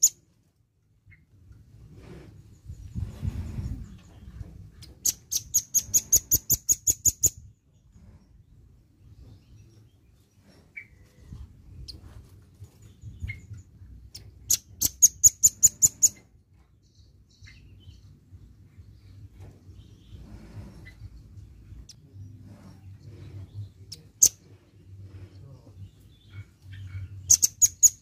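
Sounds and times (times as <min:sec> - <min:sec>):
bird singing rapid trills: 0:04.8 - 0:08.4, 0:12.8 - 0:20.2, 0:20.8 - 0:28.0.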